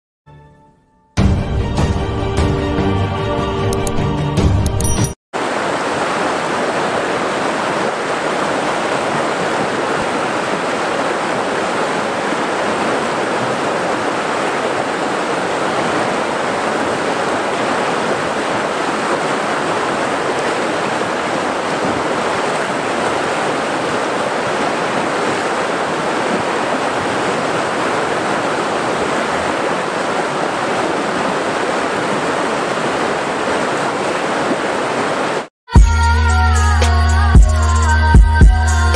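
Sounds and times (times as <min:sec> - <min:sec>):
water rushing over rocks: 0:05.4 - 0:35.5.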